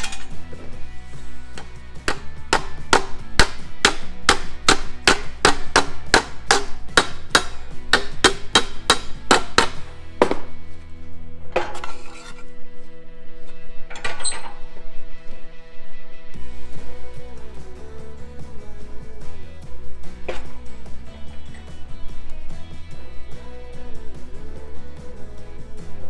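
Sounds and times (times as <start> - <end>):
background music: 0.0 - 26.0
hammer striking sheet steel: 1.5 - 10.5.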